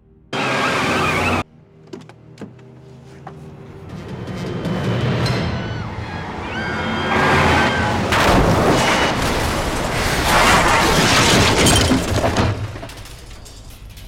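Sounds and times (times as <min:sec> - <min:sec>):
cars crashing with crunching metal: 0:03.9 - 0:14.0
debris clattering: 0:08.1 - 0:14.0
glass breaking: 0:08.2 - 0:14.0.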